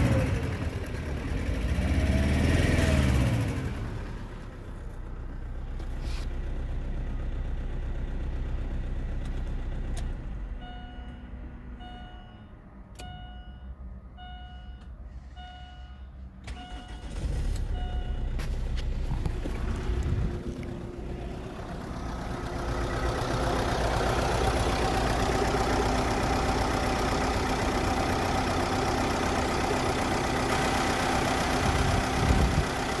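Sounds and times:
diesel engine idling: 0.0s - 33.0s
dashboard warning chime beeping: 10.6s - 18.6s.

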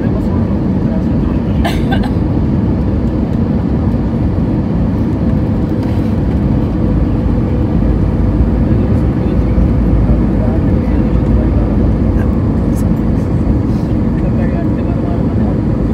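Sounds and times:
aircraft cabin engine rumble: 0.0s - 15.9s.

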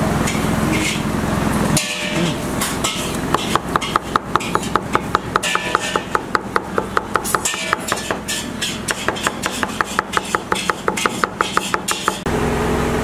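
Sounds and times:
steady hum: 0.0s - 13.0s
knife chopping on cutting board: 3.3s - 12.2s.

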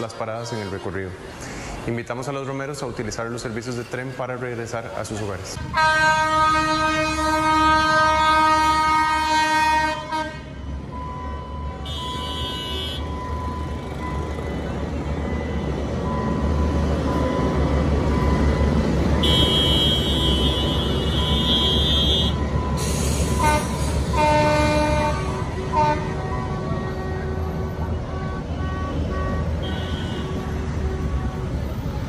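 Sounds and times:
road traffic: 0.0s - 32.0s
train cars rumbling: 0.0s - 32.0s
train horn blasts: 5.7s - 10.6s, 11.8s - 13.1s, 19.2s - 22.4s, 23.3s - 31.8s.

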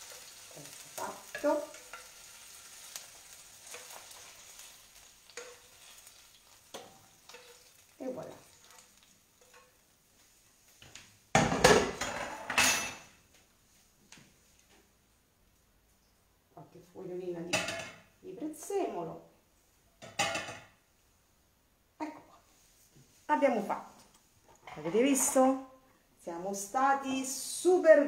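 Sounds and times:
utensil scraping in a frying pan: 0.0s - 10.5s
cookware clattering: 11.4s - 13.2s, 17.5s - 18.0s, 20.0s - 20.8s.

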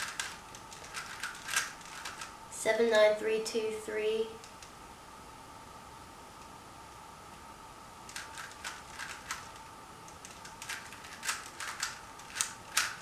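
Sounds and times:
plastic puzzle cube clicking: 0.0s - 2.3s, 8.1s - 13.0s.

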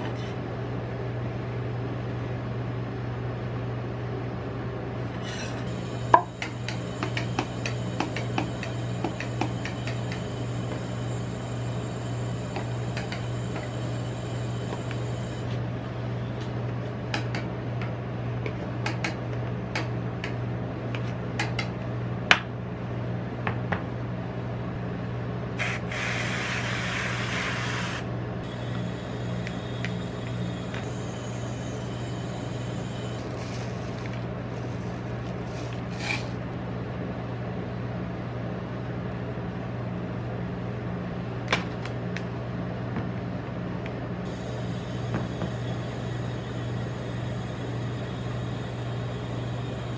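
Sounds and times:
low machine hum: 0.0s - 49.9s
whipped cream can spraying: 25.6s - 28.0s.

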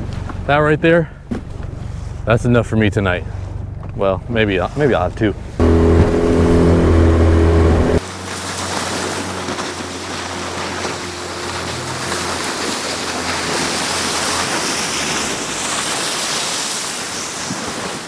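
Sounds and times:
distant outboard boat drone: 1.1s - 17.6s
outboard motor running loud: 5.4s - 16.9s
small waves on sandy shore: 8.0s - 18.0s.

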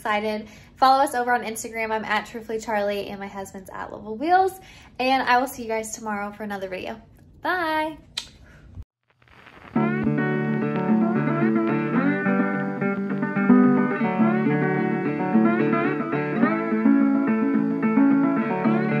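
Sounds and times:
instrumental tune with plucked guitar: 9.8s - 19.0s.

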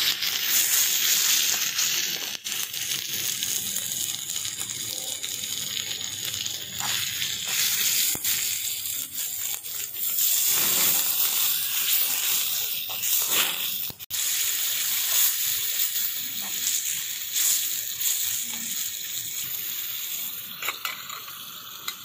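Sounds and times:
curry sizzling and bubbling: 0.0s - 22.0s
metal spoon scraping pan: 10.2s - 12.4s.

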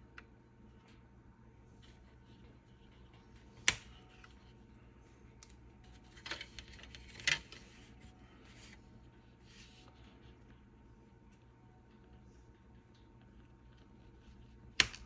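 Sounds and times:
paper rustle: 5.8s - 10.1s.

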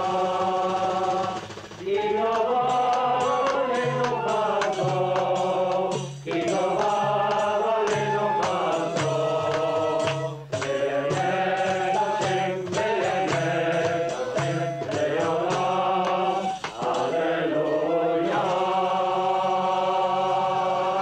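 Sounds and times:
men chanting together: 0.0s - 21.0s
hand-clapping: 0.8s - 17.3s.

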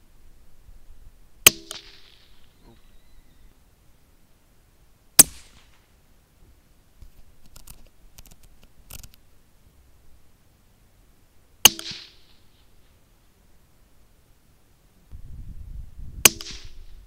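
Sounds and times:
rifle shots: 5.2s - 5.8s.

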